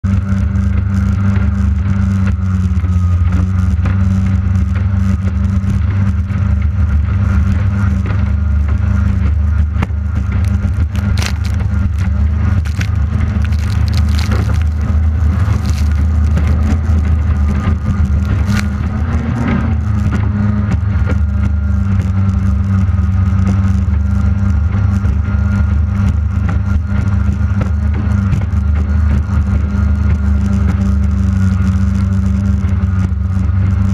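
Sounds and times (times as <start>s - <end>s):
outboard engine racing: 0.0s - 33.9s
rush of wind and water: 9.2s - 22.3s.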